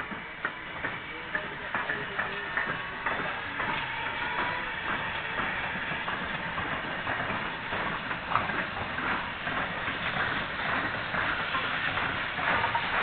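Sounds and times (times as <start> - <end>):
steam locomotives rolling past: 0.0 - 13.0.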